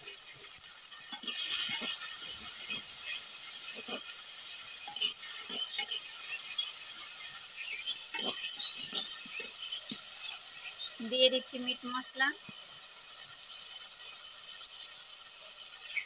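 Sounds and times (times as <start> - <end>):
masala sizzling: 0.0 - 16.0
ladle scraping earthenware pot: 1.0 - 10.3.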